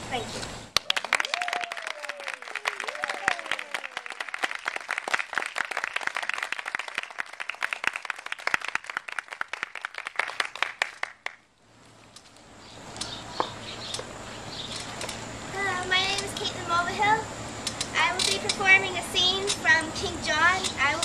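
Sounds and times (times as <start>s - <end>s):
audience applause: 0.7s - 11.4s.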